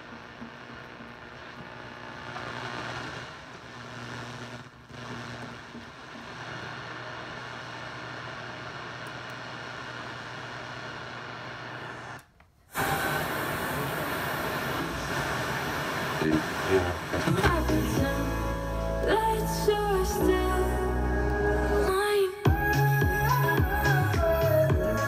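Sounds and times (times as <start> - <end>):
radio static hiss: 0.0 - 18.5.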